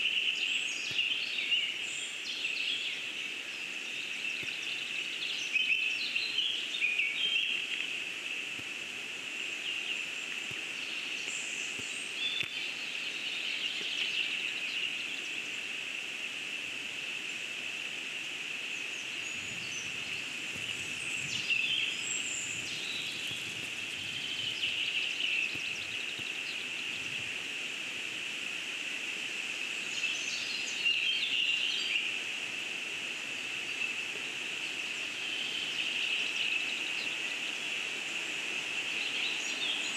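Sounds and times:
small birds chirping: 0.0 - 7.9, 9.5 - 15.6, 18.6 - 27.3, 33.3 - 39.9
high-pitched hiss: 0.0 - 39.9.

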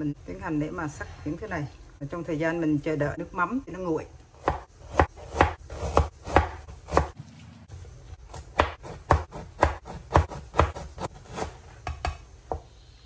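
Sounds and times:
knife chopping on plastic board: 4.4 - 7.2, 8.3 - 12.6.

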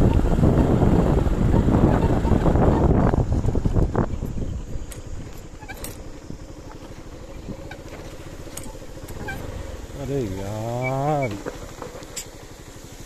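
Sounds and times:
bike clicks and rattles: 0.0 - 13.0
motorcycle engine running: 0.0 - 13.0
drawn-out pitched call: 5.4 - 11.6.

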